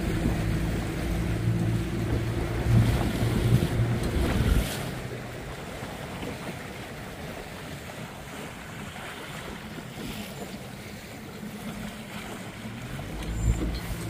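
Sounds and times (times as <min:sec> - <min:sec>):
waves splashing: 0:00.0 - 0:14.0
wind on microphone: 0:02.0 - 0:05.0.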